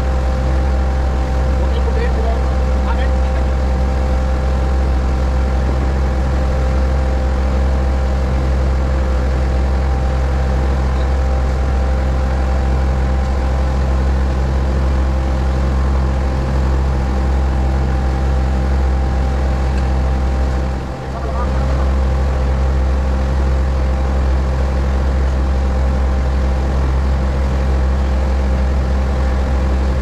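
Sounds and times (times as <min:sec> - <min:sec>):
boat engine droning: 0:00.0 - 0:30.0
faint steady whine: 0:00.0 - 0:30.0.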